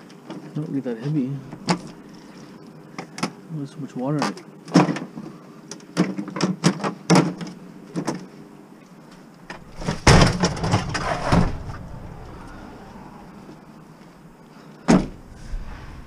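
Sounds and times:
appliance scraping into car: 9.6s - 11.8s.

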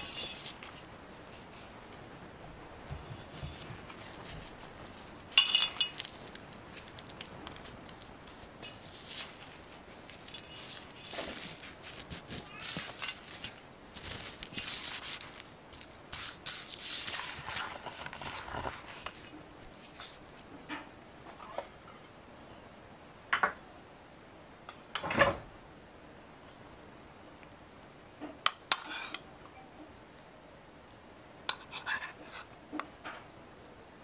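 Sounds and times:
fingers crumbling crust in metal pan: 5.0s - 15.2s.

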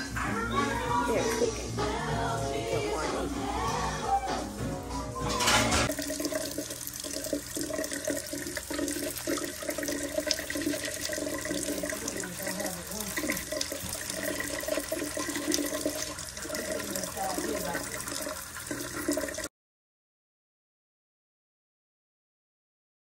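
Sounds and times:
tap running into sink: 5.4s - 19.4s.

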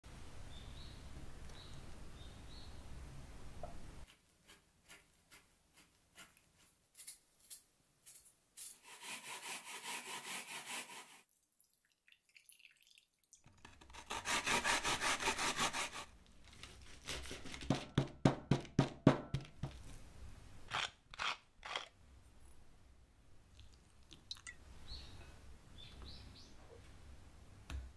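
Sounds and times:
grating rasping: 13.6s - 17.8s, 20.7s - 21.9s
knife chopping: 16.6s - 19.8s.

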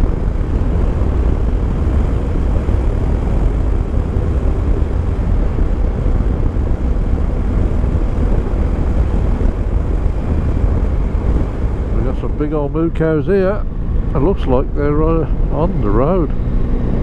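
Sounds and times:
motorcycle engine running: 0.0s - 17.0s
wind rumble on microphone: 0.0s - 17.0s.

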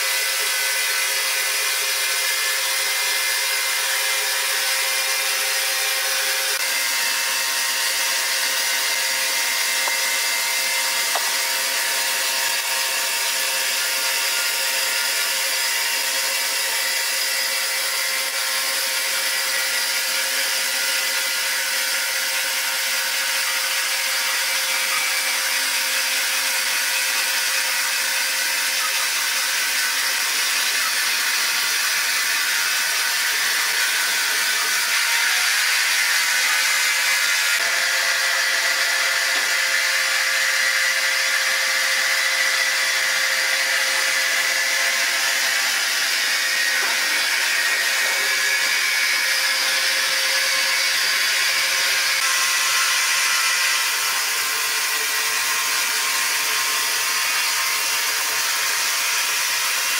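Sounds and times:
band saw cutting log: 0.0s - 59.9s
machine whine: 0.0s - 59.9s.

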